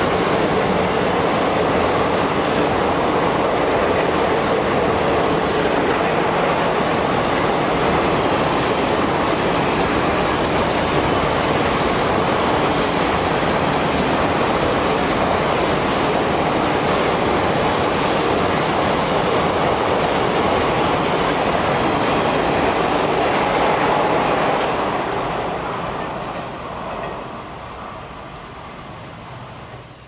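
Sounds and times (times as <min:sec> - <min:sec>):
train wheels running on rails: 0:00.0 - 0:30.0.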